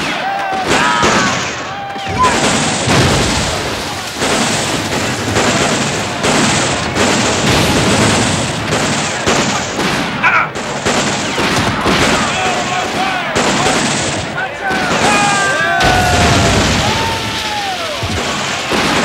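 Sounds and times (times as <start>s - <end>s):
fighters yelling: 0.0s - 2.6s, 11.7s - 18.2s
massed gunfire with booms: 0.0s - 19.0s.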